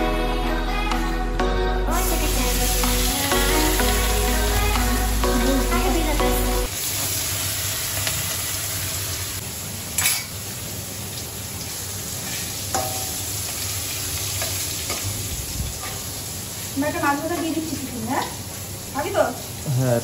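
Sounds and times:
fish frying in hot oil: 0:06.7 - 0:19.9.

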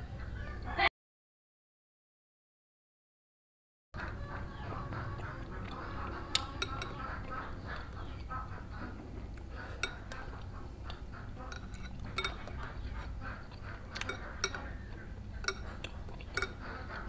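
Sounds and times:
metal spoon clinking on ceramic bowl: 0:06.3 - 0:07.2, 0:09.7 - 0:10.4, 0:11.4 - 0:12.8, 0:13.9 - 0:14.8, 0:15.4 - 0:16.7.

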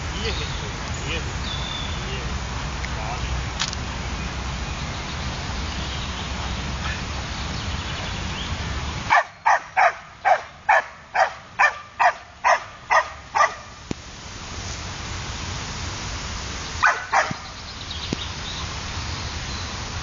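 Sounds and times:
dog barking: 0:09.1 - 0:13.7, 0:16.8 - 0:17.4.

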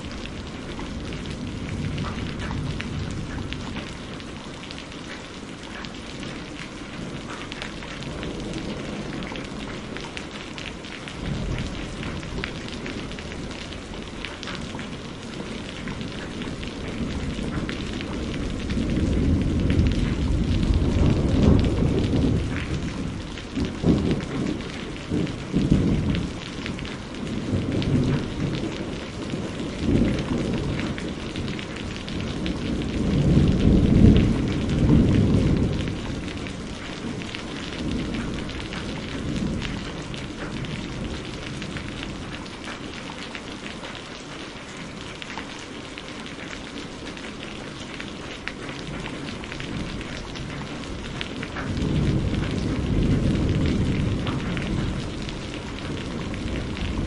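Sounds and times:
thunder rumbling: 0:00.0 - 0:43.1, 0:48.3 - 0:57.0
steady rain: 0:00.0 - 0:57.0.

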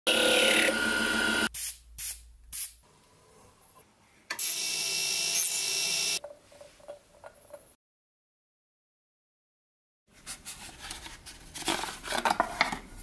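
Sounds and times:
lathe cutting wood: 0:00.1 - 0:01.5.

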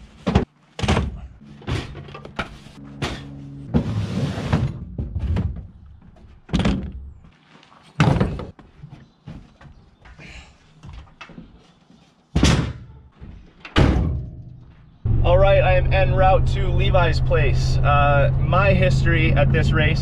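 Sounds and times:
rustling and scraping: 0:01.4 - 0:06.4, 0:07.3 - 0:09.8
bags and bins thumping into truck bed: 0:08.0 - 0:08.6.

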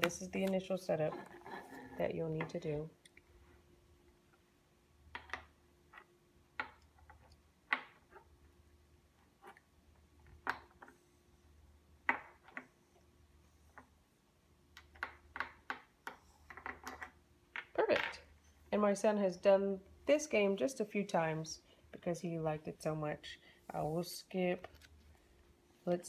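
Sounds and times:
wooden blocks knocking and clicking: 0:05.1 - 0:08.2, 0:14.7 - 0:18.2.

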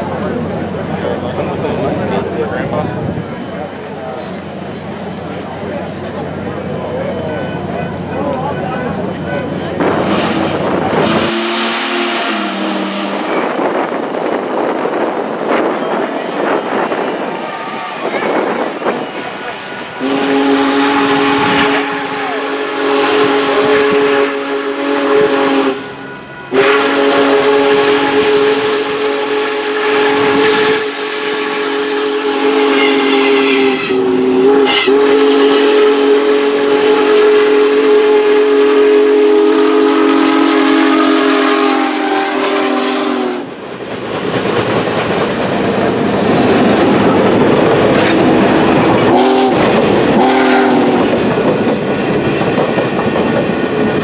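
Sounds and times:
passenger cars rolling clatter: 0:00.0 - 0:11.4, 0:43.4 - 0:50.3, 0:50.9 - 0:54.0
steam locomotive whistle: 0:08.8 - 0:43.5, 0:47.0 - 0:51.4.

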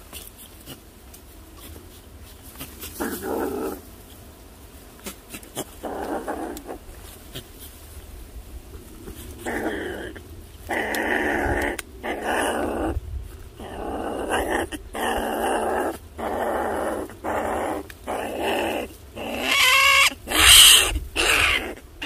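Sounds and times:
animal growling: 0:02.7 - 0:03.9, 0:05.4 - 0:07.1, 0:08.9 - 0:21.9
animal squealing: 0:17.4 - 0:21.8.

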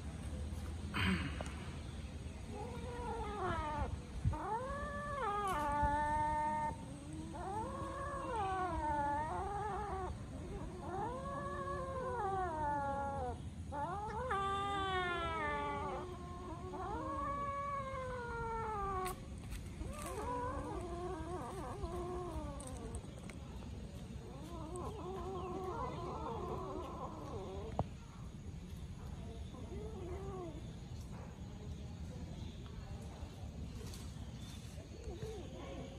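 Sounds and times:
kittens meowing: 0:02.6 - 0:23.4, 0:24.2 - 0:27.9.

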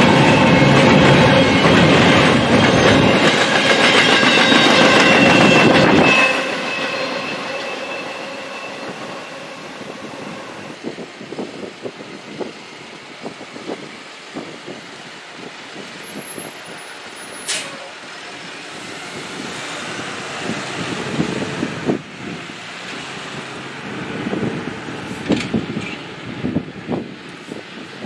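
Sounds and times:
train wheels clattering: 0:00.0 - 0:09.5
high squealing tones: 0:00.1 - 0:10.8.

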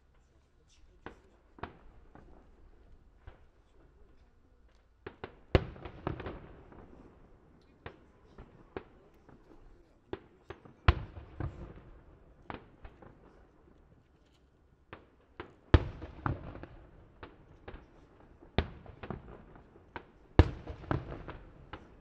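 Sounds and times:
fireworks bursting: 0:01.0 - 0:09.5, 0:14.8 - 0:22.0.

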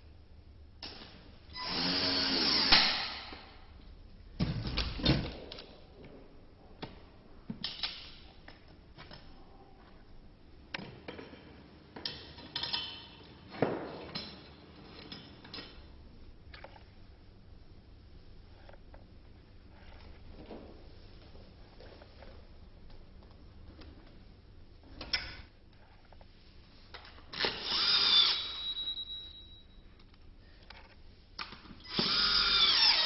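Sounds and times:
machine whir: 0:27.4 - 0:28.8, 0:31.9 - 0:33.0.

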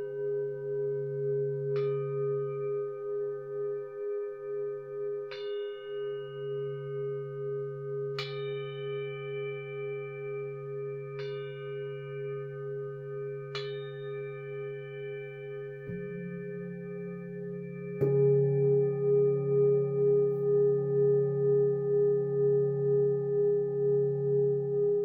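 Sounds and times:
low wavering hum: 0:00.0 - 0:25.0
singing bowl strikes: 0:08.1 - 0:24.9.

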